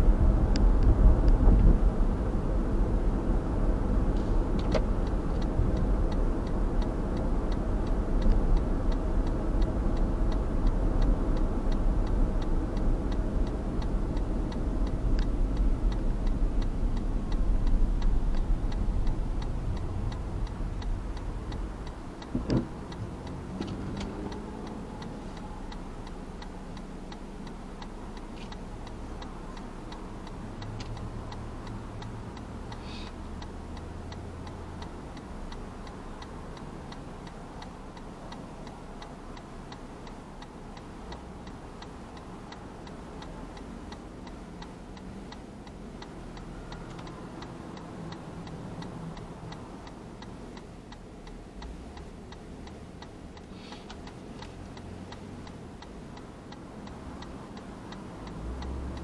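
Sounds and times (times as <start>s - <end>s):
low traffic rumble: 0.0s - 59.0s
turn signal ticking: 0.0s - 59.0s.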